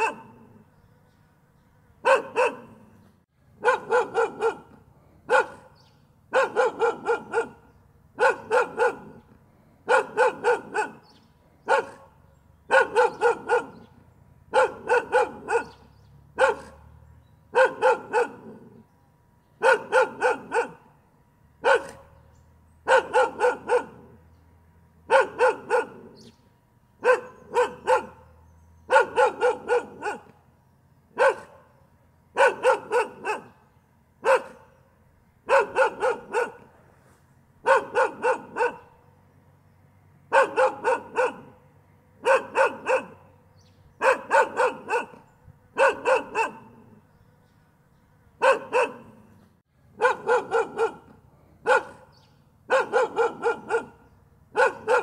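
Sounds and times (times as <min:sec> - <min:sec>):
dog barking: 0:00.0 - 0:00.6, 0:02.0 - 0:03.0, 0:03.6 - 0:16.9, 0:17.5 - 0:18.8, 0:19.6 - 0:20.9, 0:21.6 - 0:22.2, 0:22.8 - 0:24.2, 0:25.1 - 0:26.3, 0:27.0 - 0:30.4, 0:31.1 - 0:33.6, 0:34.2 - 0:34.8, 0:35.4 - 0:36.7, 0:37.6 - 0:39.0, 0:40.3 - 0:41.6, 0:42.2 - 0:43.4, 0:44.0 - 0:47.0, 0:48.4 - 0:49.3, 0:50.0 - 0:55.0.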